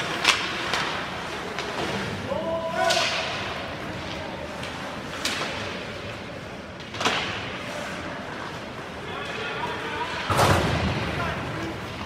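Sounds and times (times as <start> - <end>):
puck and sticks cracking: 0.0 - 2.0, 2.8 - 3.5
arena background noise: 0.0 - 12.0.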